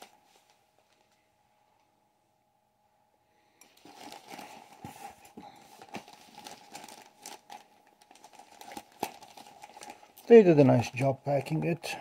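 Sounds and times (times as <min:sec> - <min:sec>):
plastic wrap crinkling: 0:00.0 - 0:01.2, 0:03.7 - 0:12.0.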